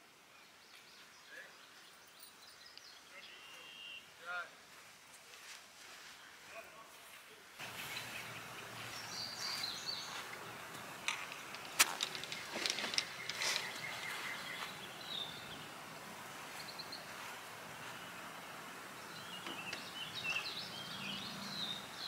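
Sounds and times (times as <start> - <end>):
birds chirping: 0.0 - 4.5, 5.8 - 22.0
sharp clicks or knocks: 11.0 - 13.9.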